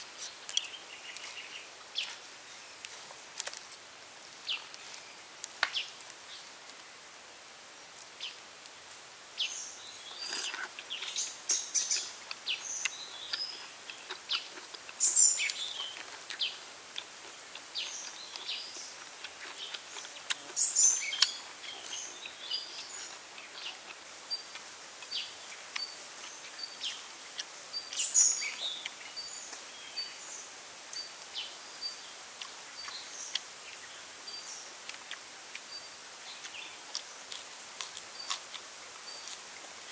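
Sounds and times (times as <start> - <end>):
birds chirping and calling: 9.4 - 16.6, 17.8 - 30.4.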